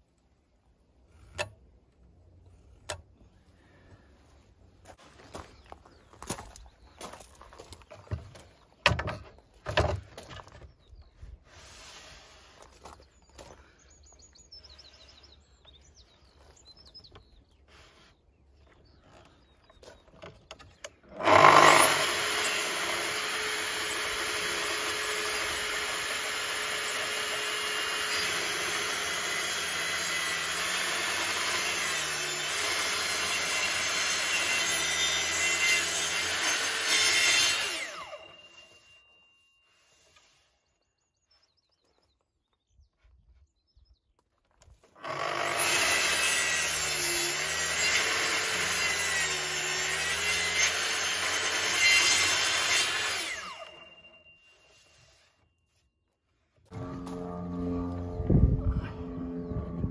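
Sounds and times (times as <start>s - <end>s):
track saw cutting wood: 21.1s - 38.8s, 45.0s - 55.2s, 56.7s - 59.9s.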